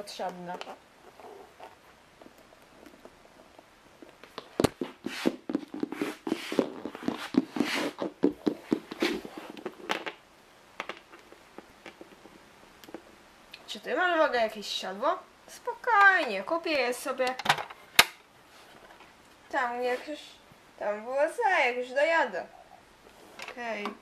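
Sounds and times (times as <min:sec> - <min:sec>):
toy hooves tapping on floor: 0:04.0 - 0:10.2.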